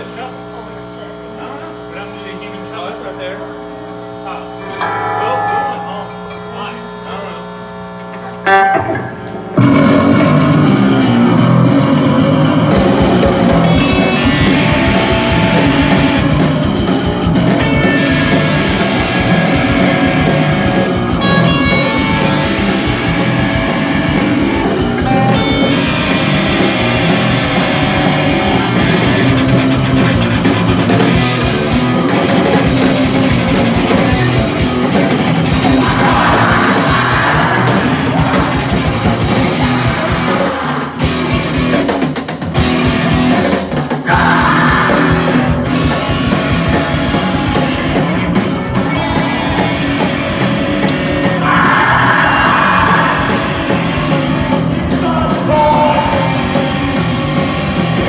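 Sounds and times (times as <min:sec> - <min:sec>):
bass guitar: 0:00.0 - 0:58.0
electric guitar: 0:03.5 - 0:58.0
drum kit: 0:08.5 - 0:58.0
shouted vocals: 0:35.5 - 0:41.6, 0:44.0 - 0:46.0, 0:51.2 - 0:54.2, 0:54.8 - 0:56.9.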